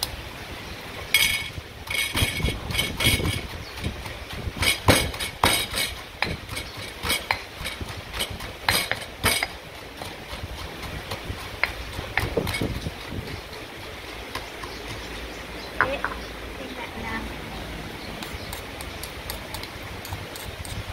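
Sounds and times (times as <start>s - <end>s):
stone pestle pounding in mortar: 1.2s - 15.0s, 18.2s - 20.9s.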